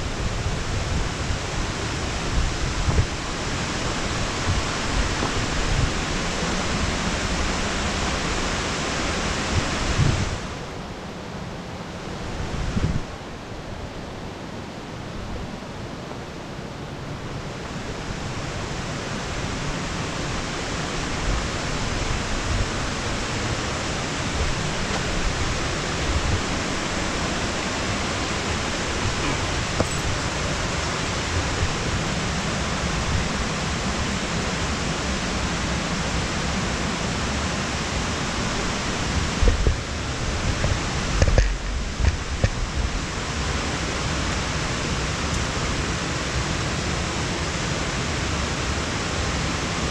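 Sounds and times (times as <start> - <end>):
creek water rushing: 0.0 - 49.9.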